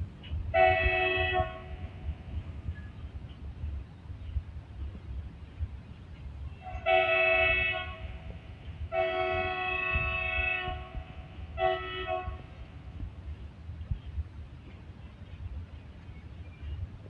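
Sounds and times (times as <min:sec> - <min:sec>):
freight train rumbling past: 0:00.0 - 0:17.0
locomotive air horn blasts: 0:00.5 - 0:02.2, 0:06.6 - 0:13.0.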